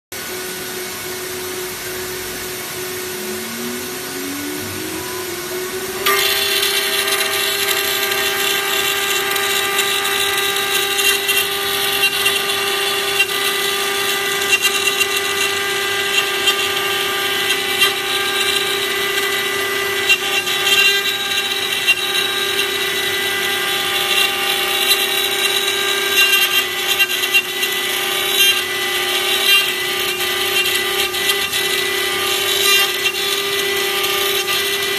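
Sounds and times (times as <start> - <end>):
rising tone: 0.2 - 7.8
router spindle whine: 0.2 - 34.9
bit cutting acrylic: 2.9 - 34.9.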